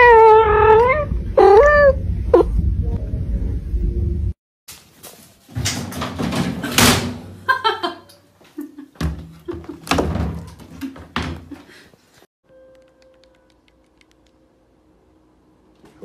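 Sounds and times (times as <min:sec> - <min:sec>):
washing machine lid bangs: 0:05.6 - 0:07.3.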